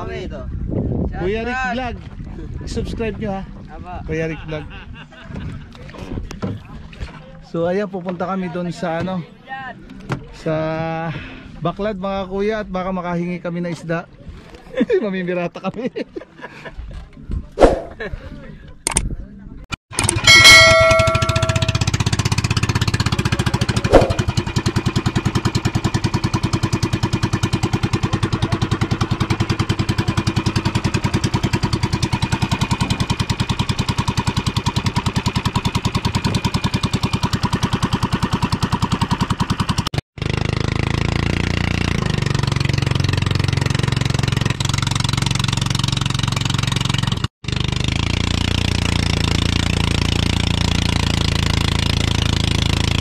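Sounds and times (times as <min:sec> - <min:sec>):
small boat engine pulsing: 0:20.0 - 0:53.0.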